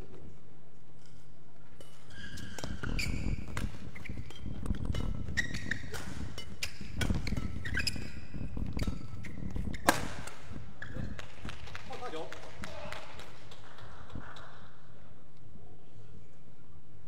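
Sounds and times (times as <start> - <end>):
rackets striking shuttlecock: 1.8 - 11.6
shoes squeaking on court: 1.8 - 11.6.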